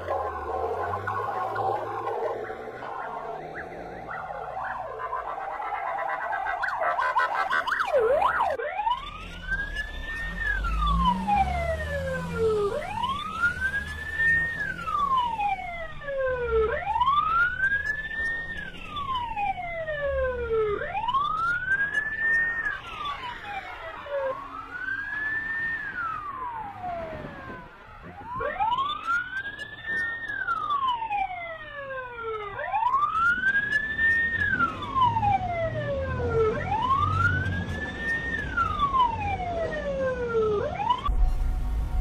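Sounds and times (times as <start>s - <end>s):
police siren wailing: 0.0s - 42.0s
second faint siren: 0.0s - 42.0s
low rumble: 41.1s - 42.0s.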